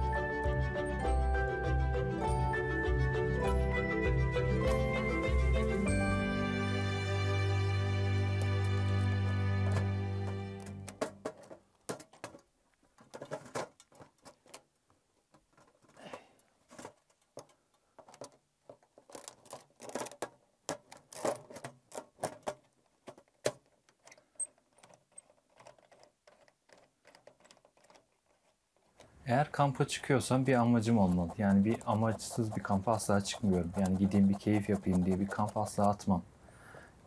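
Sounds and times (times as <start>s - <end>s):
metallic clinks and scrapes: 24.0s - 29.2s.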